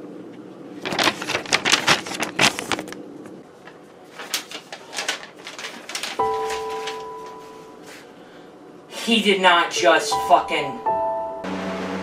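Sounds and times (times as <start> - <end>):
paper rustling and crinkling: 0.8 - 8.0.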